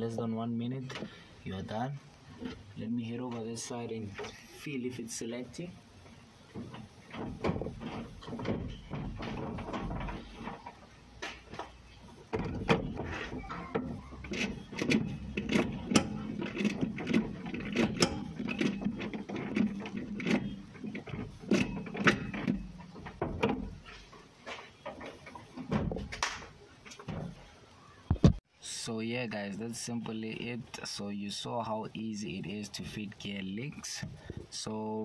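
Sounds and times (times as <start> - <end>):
gear linkage clicks and clunks: 12.3 - 24.0.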